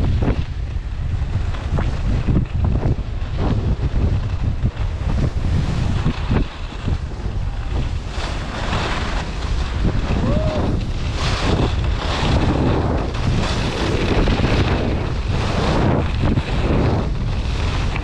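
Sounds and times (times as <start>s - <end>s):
skis scraping over snow: 0.0s - 18.0s
wind buffeting microphone: 0.0s - 18.0s.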